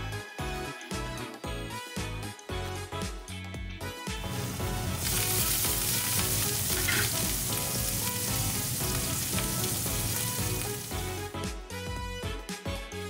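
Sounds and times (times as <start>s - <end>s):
beef sizzling in hot fat: 4.3s - 11.3s.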